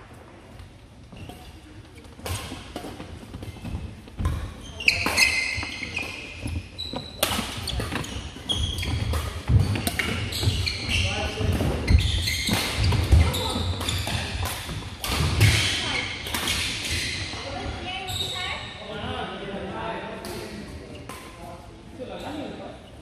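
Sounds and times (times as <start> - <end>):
sneaker squeaks: 1.1 - 18.9
racket hitting shuttlecock: 2.2 - 6.6, 7.2 - 17.0.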